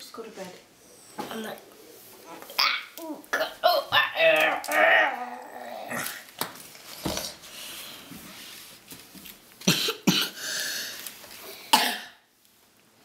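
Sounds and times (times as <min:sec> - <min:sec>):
child coughing: 0:03.3 - 0:03.8, 0:09.7 - 0:10.4, 0:11.7 - 0:12.2.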